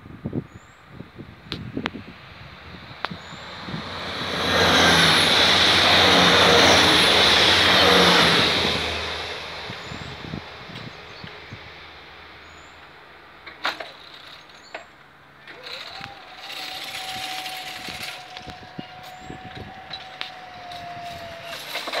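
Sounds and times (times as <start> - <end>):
barrier motor whining: 3.1 - 11.0, 15.5 - 22.0.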